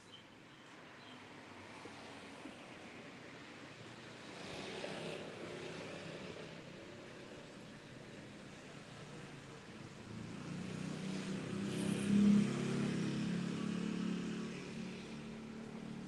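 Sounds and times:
vehicle engine passing: 0:10.1 - 0:16.0.

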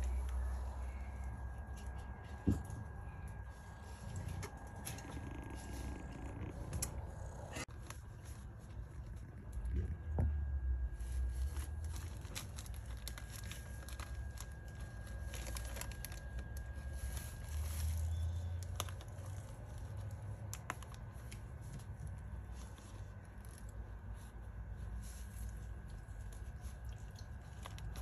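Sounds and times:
low rumble: 0:00.0 - 0:20.2
plastic film crinkling: 0:10.5 - 0:28.0.

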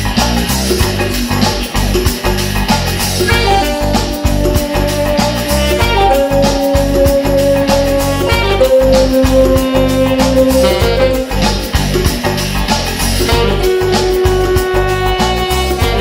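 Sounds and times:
backing track with beat and bass: 0:00.0 - 0:16.0
saxophone long held notes: 0:03.3 - 0:12.1, 0:13.3 - 0:16.0.

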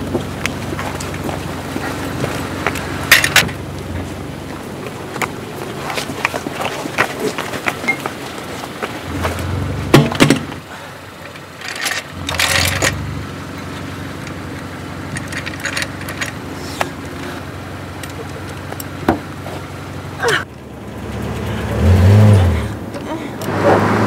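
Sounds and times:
low steady hum: 0:00.0 - 0:23.4.

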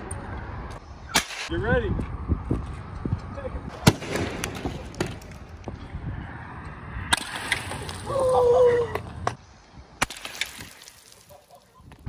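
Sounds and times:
person shouting: 0:08.0 - 0:09.1.

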